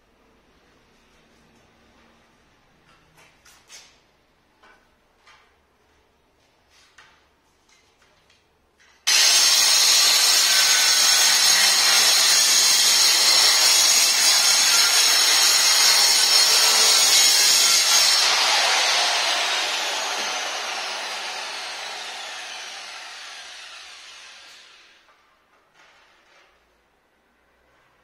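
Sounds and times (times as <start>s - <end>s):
stone cutter grinding whine: 9.1s - 24.9s.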